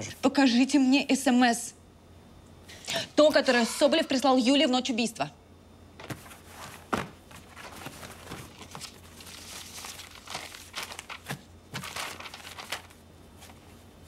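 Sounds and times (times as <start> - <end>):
rustling and crinkling: 6.0 - 14.0.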